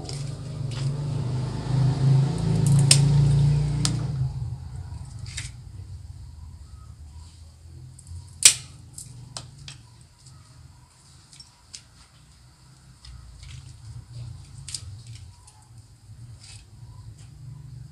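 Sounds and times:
cutters snipping twigs: 2.3 - 4.1.

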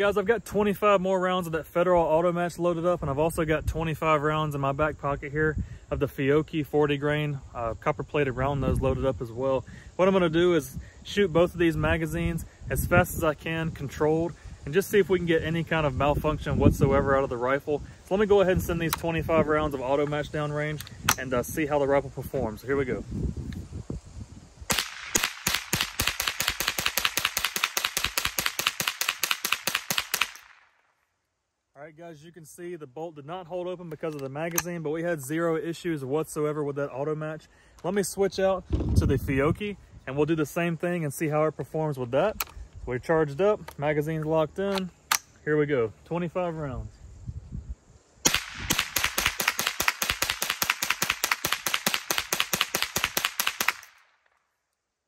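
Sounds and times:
rifle firing rapid shots: 24.7 - 30.6, 48.3 - 53.9.

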